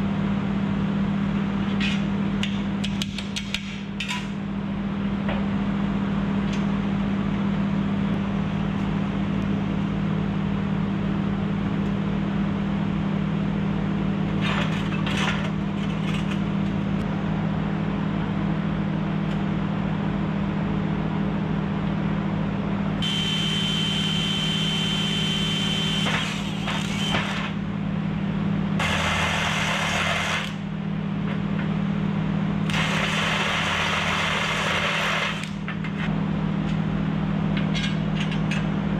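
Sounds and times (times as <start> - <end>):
steady low hum: 0.0 - 38.9
cordless drill running: 23.0 - 27.2, 32.7 - 35.5
drill boring into steel: 23.0 - 27.4, 28.8 - 30.6, 32.7 - 35.5.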